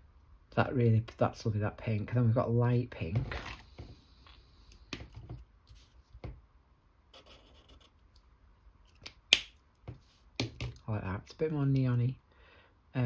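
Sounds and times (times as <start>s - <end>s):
marker nib rubbing on paper: 7.2s - 8.0s.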